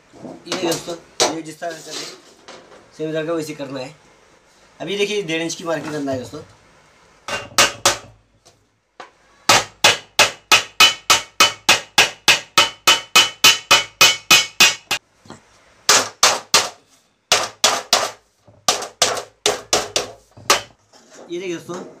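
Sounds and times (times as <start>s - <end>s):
hammer blows on sheet metal: 9.5s - 15.0s.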